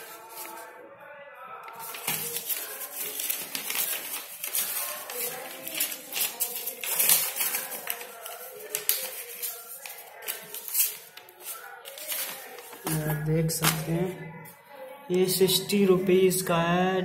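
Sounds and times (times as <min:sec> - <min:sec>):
bubble wrap crinkling: 0:00.0 - 0:00.7, 0:01.7 - 0:14.1
person talking: 0:08.0 - 0:17.0.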